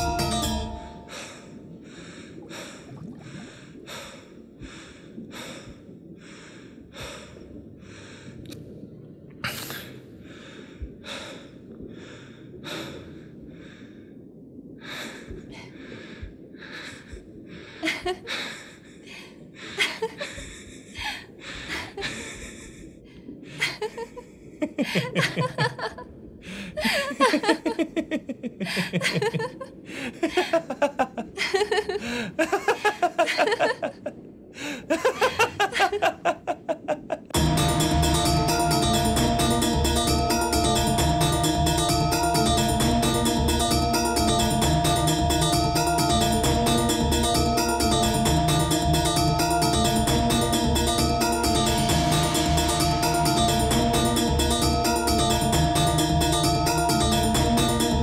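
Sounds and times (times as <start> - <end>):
person breathing hard: 1.1 - 8.4, 14.8 - 23.8, 26.4 - 27.2, 32.0 - 32.4, 34.6 - 34.9
person laughing: 23.6 - 26.0, 26.8 - 34.1, 34.9 - 37.4.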